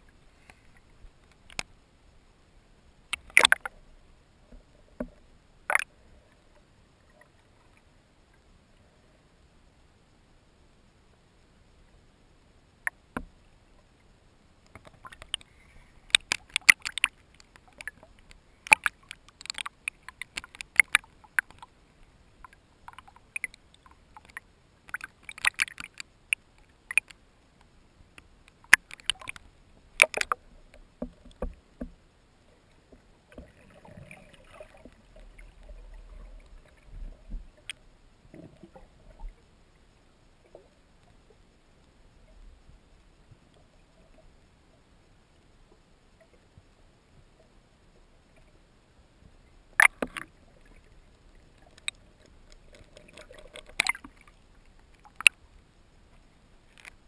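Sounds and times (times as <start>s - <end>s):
muffled underwater sounds: 0.0s - 57.0s
water splashing: 3.1s - 3.8s, 5.0s - 6.0s, 14.7s - 27.2s, 33.3s - 39.4s, 49.8s - 55.4s.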